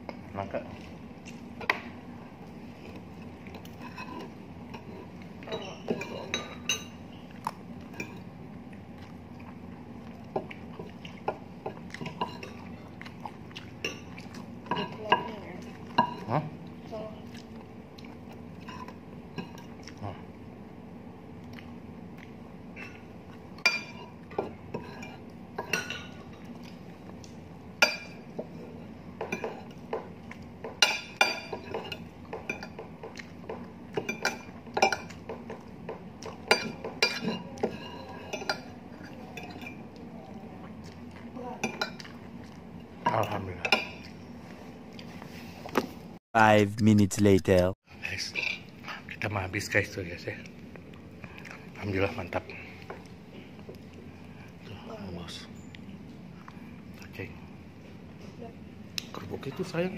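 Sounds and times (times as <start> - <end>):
cutlery clinking on plate: 36.5 - 38.7.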